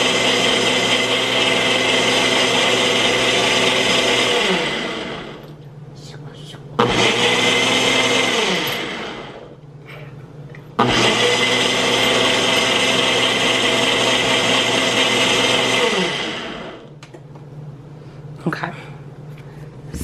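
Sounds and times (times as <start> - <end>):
blender motor running in bursts: 0.0 - 5.4, 6.8 - 9.4, 10.8 - 16.8.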